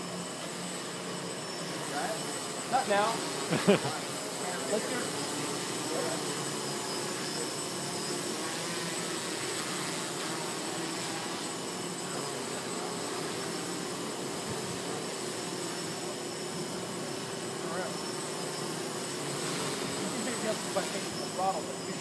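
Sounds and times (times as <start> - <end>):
drone propellers buzzing: 0.0 - 22.0.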